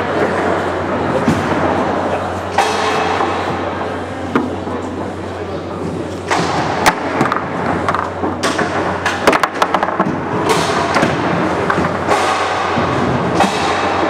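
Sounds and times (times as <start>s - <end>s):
steady background noise: 0.0s - 14.0s
foosball clacks: 6.3s - 14.0s.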